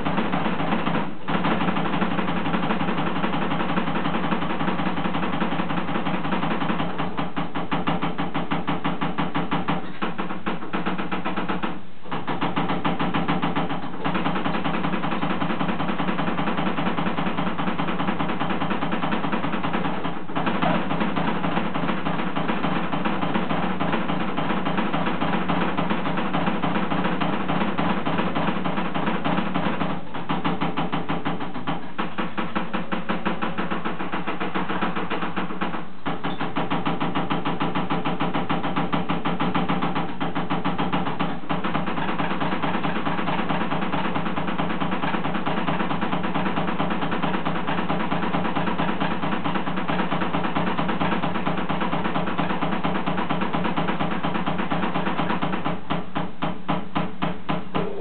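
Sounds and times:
fast double bass drumming: 0:12.2 - 0:58.0.

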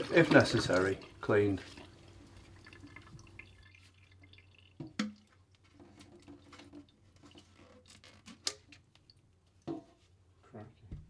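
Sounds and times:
water dripping into a steel sink: 0:00.0 - 0:07.4, 0:08.4 - 0:09.7.

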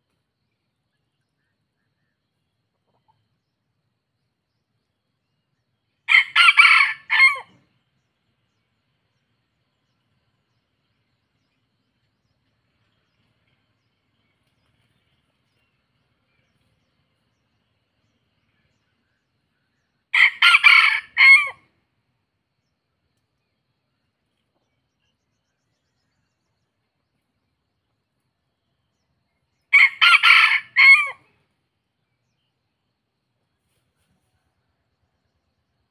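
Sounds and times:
rooster crowing: 0:06.1 - 0:07.6, 0:20.1 - 0:21.6, 0:29.7 - 0:31.3.

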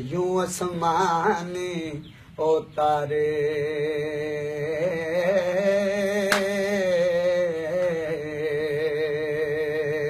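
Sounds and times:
man singing folk verse: 0:00.0 - 0:10.0.

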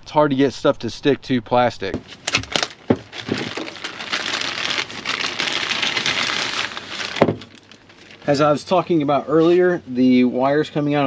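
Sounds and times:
plastic packaging crinkling: 0:02.1 - 0:08.6.

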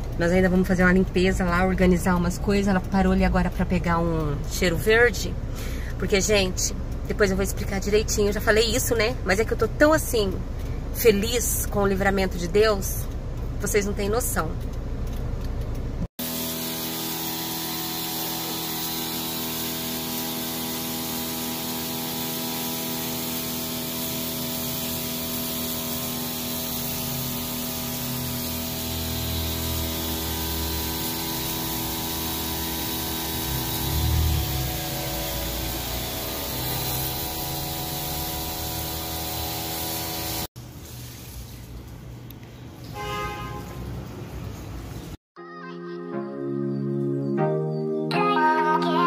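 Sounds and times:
machine humming whine: 0:16.2 - 0:40.5.

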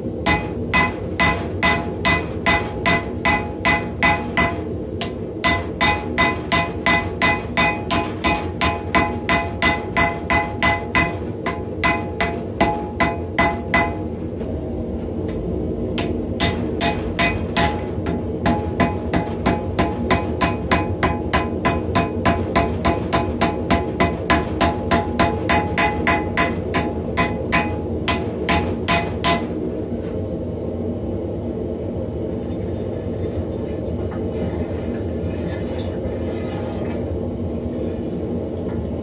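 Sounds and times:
hammer blows on anvil: 0:00.3 - 0:14.1, 0:16.0 - 0:29.6
low rumble: 0:11.1 - 0:19.4.

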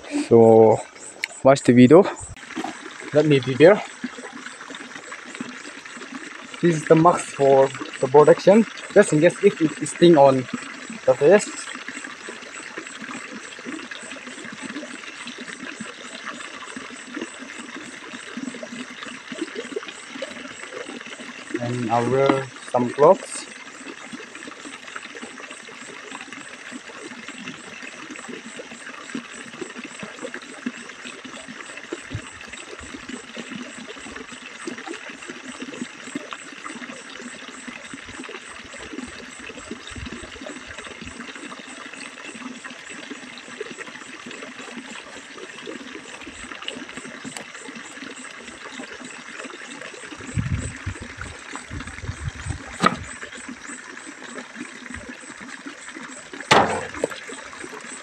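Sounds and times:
stream water rushing: 0:00.0 - 0:42.1, 0:44.2 - 0:58.0
low thumps: 0:56.5 - 0:57.2.

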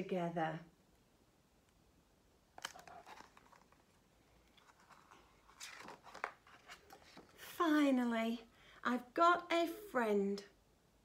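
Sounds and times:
paper pages rustling: 0:02.6 - 0:07.4.

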